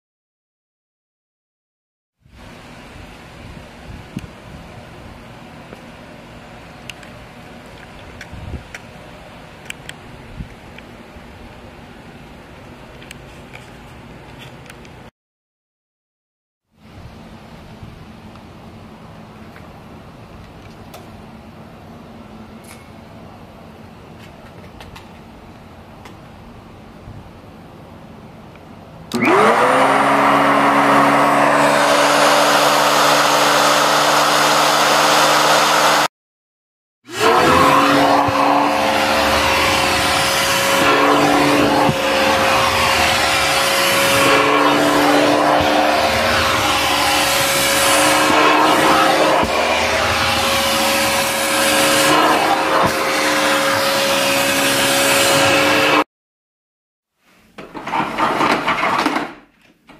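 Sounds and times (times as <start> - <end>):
vacuum cleaner motor whine: 29.1 - 36.1, 37.1 - 56.0
vacuum nozzle over carpet: 29.1 - 36.1, 37.1 - 56.0.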